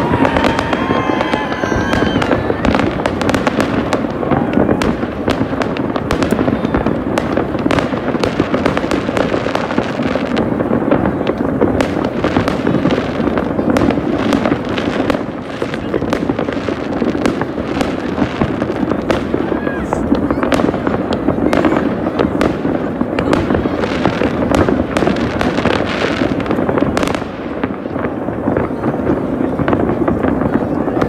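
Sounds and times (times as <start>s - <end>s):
whistling rockets: 0.0s - 10.3s
fireworks banging and crackling: 0.0s - 31.0s.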